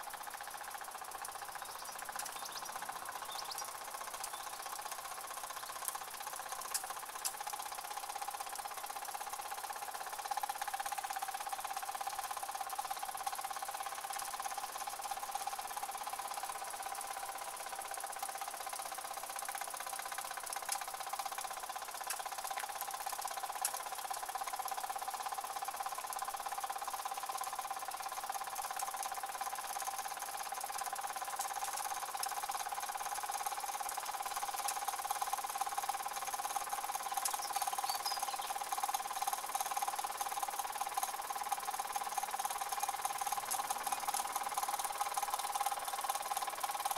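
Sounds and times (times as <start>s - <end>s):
toy steam engines chattering: 32.6s - 46.9s.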